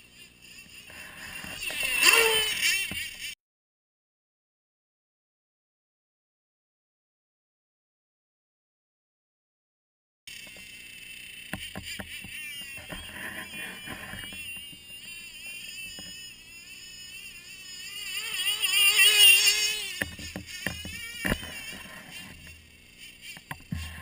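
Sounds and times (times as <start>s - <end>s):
toy snowmobile motor whining: 0.0s - 3.4s, 10.3s - 24.0s.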